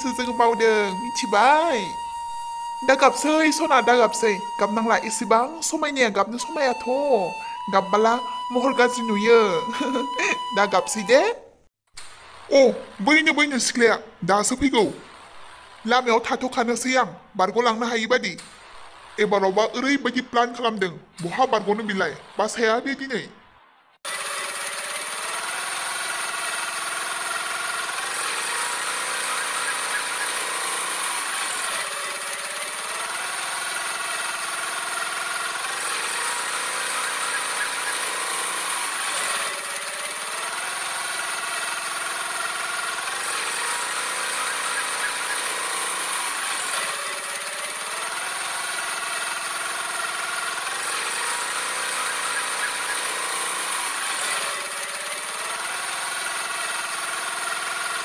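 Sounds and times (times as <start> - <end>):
motor scooter engine: 0.0 - 11.3, 24.0 - 58.0.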